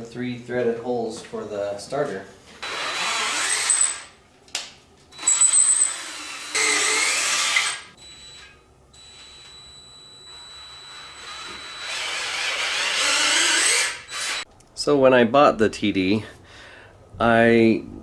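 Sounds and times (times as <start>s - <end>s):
electric drill running: 2.6s - 4.1s, 5.2s - 8.5s, 10.3s - 14.5s.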